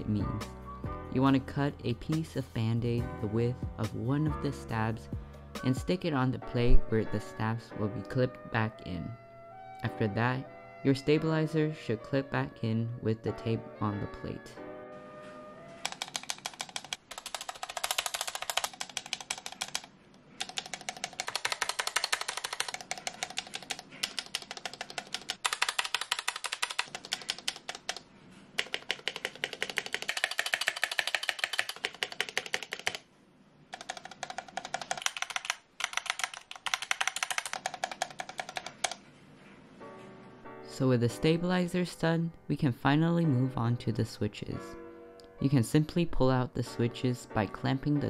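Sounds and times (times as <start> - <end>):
keyboard keys clacking: 14.9 - 33.1, 33.7 - 39.6.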